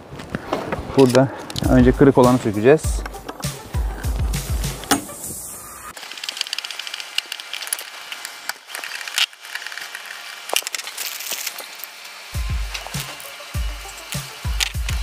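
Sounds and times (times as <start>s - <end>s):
screwdriver clicking and scraping on metal: 6.0s - 11.9s, 12.7s - 13.4s
plastic bag crinkling: 6.0s - 13.4s.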